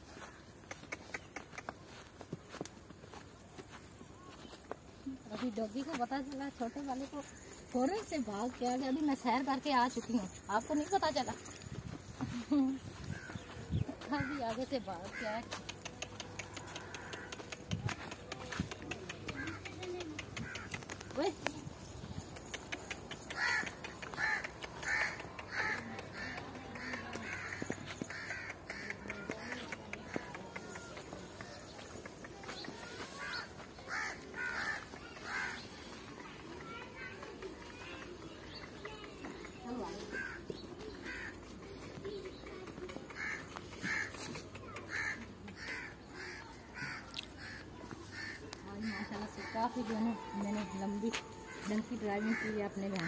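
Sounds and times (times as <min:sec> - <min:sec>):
crow cawing: 0:15.0 - 0:15.4, 0:20.4 - 0:20.8, 0:23.3 - 0:29.7, 0:33.2 - 0:35.6, 0:40.2 - 0:41.4, 0:43.2 - 0:44.2, 0:44.9 - 0:50.2, 0:51.2 - 0:52.8.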